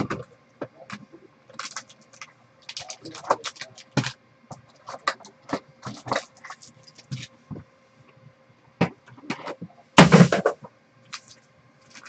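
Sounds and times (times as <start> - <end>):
card packs rustling and clicking: 1.5 - 4.2.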